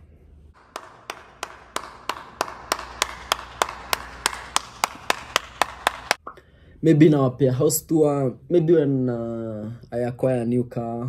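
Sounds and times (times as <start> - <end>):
person clapping with echo: 0.6 - 6.3.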